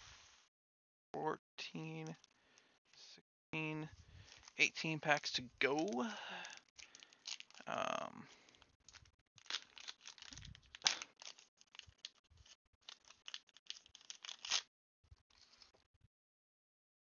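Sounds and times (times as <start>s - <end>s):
wrapper tearing and crinkling: 5.8s - 14.7s.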